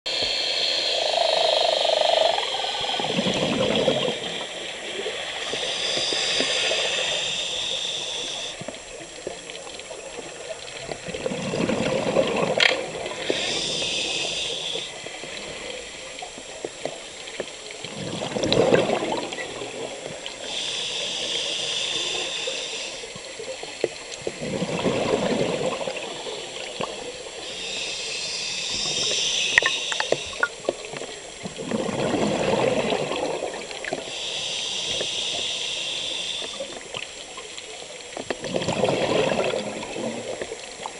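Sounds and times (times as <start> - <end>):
regulator inhale hiss: 0.1 - 9.0, 12.9 - 16.6, 20.2 - 24.3, 26.2 - 31.4, 33.8 - 37.3
exhaled bubbles rushing: 3.0 - 4.4, 10.8 - 13.2, 17.8 - 20.0, 24.3 - 27.0, 31.4 - 34.0, 38.4 - 40.4.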